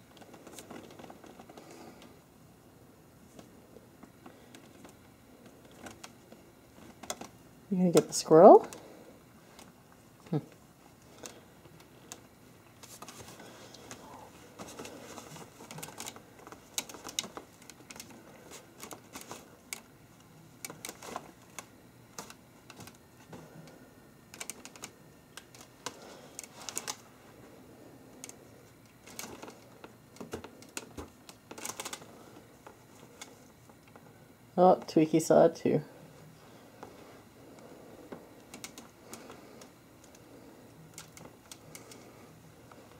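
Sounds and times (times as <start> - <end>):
soft rustling: 3.2 - 23.8.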